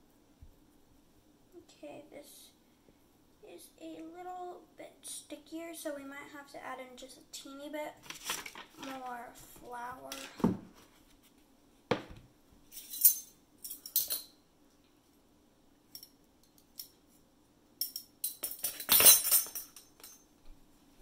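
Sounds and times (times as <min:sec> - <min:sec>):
metal spoons clinking against mug: 0:12.8 - 0:14.3.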